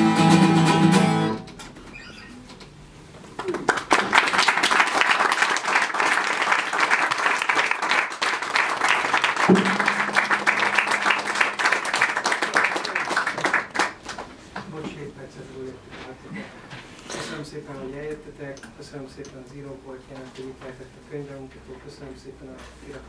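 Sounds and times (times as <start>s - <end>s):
audience applause: 3.3s - 14.3s
acoustic guitar string ringing: 9.5s - 12.2s.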